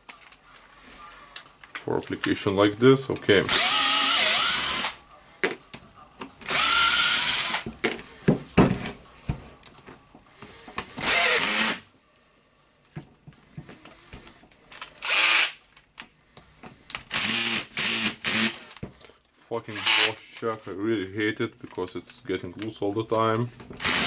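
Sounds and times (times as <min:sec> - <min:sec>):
cordless drill running: 0:03.5 - 0:05.0, 0:06.5 - 0:07.6, 0:11.0 - 0:11.8, 0:15.0 - 0:15.6, 0:17.1 - 0:18.8, 0:19.7 - 0:20.1, 0:23.8 - 0:24.0
tool and screws clicking: 0:14.7 - 0:16.1.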